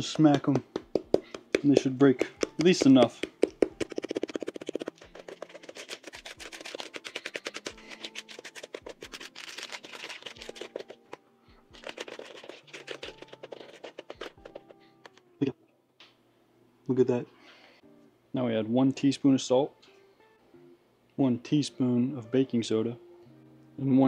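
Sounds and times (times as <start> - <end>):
spatula knocking and scraping bowl: 0.0 - 6.8.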